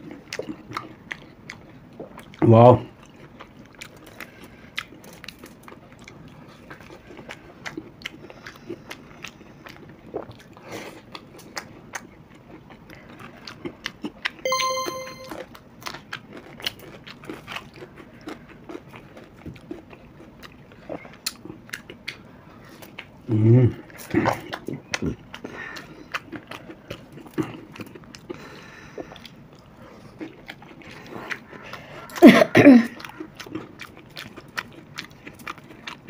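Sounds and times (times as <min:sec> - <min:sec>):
crunching and chewing food: 0:00.0 - 0:14.4, 0:15.8 - 0:36.0
short ringing tone: 0:14.5 - 0:15.4.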